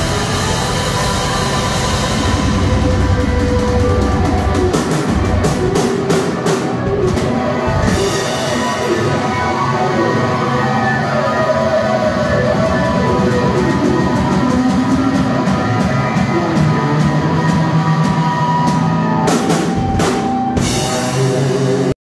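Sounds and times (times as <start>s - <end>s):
cymbal crashes: 0.0s - 6.9s
live rock band playing: 0.0s - 21.9s.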